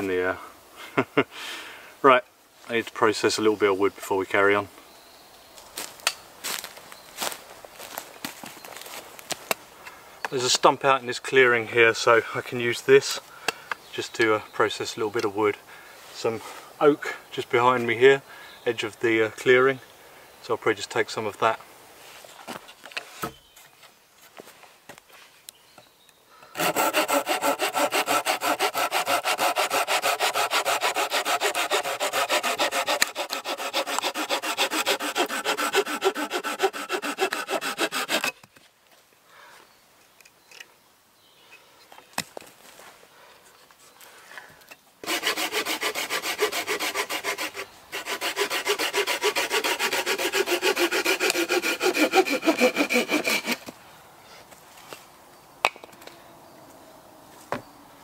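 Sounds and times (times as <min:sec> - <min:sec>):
hand saw cutting branch: 0:26.5 - 0:38.4, 0:45.0 - 0:53.7.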